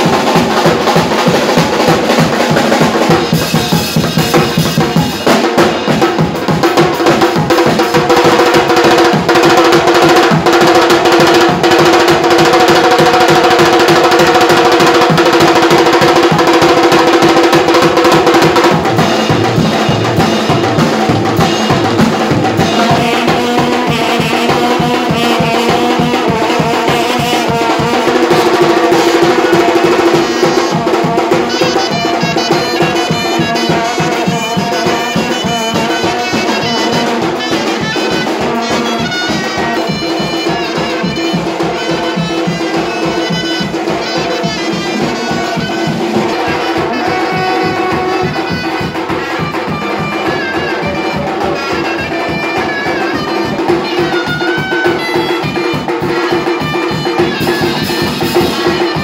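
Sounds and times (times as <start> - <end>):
drum kit beaten fast: 0.0 - 59.0
reed pipe playing: 11.8 - 59.0
long brass horns blowing: 22.6 - 53.7.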